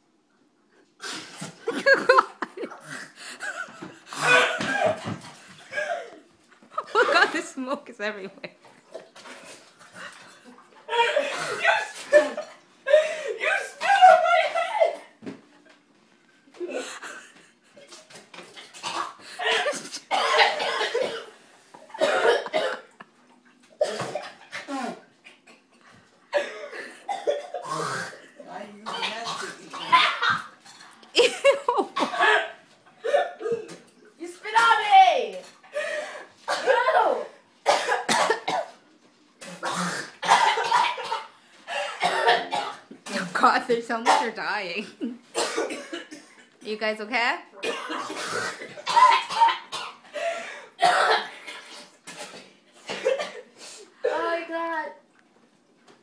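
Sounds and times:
person coughing and hacking: 2.7s - 6.2s, 13.4s - 15.1s, 18.8s - 21.3s, 22.0s - 22.9s, 23.8s - 25.0s, 26.3s - 30.5s, 32.0s - 33.8s, 36.5s - 37.0s, 37.6s - 38.7s, 39.4s - 43.4s, 44.0s - 46.4s, 47.6s - 50.0s, 50.8s - 54.3s
breaths: 12.9s - 13.4s, 35.7s - 36.4s, 50.1s - 50.8s.

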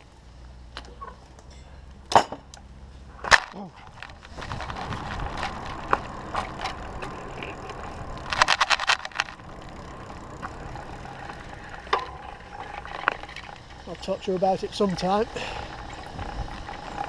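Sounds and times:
wind: 0.0s - 17.0s
tyre rumble: 3.1s - 17.0s
camera rattling in mount: 3.3s - 9.4s.

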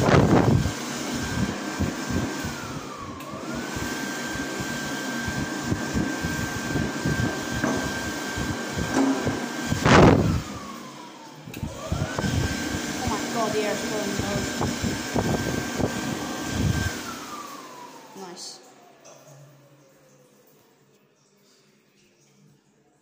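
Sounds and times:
hand dryer running: 0.0s - 20.7s.

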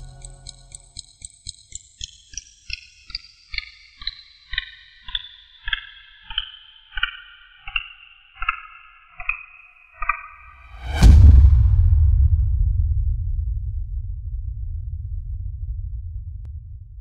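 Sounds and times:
synthesized ticking pulse: 0.0s - 10.2s
low thump: 10.6s - 17.0s.

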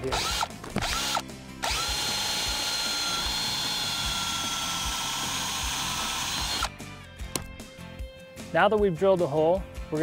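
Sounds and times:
drill motor whining: 0.0s - 6.8s
music with a steady beat: 0.4s - 10.0s.

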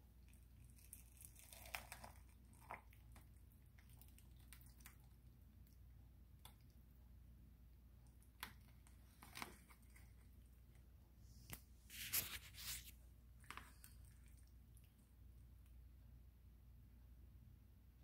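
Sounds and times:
low steady hum: 0.0s - 18.0s
spoon scooping from foil pan: 11.4s - 14.5s.

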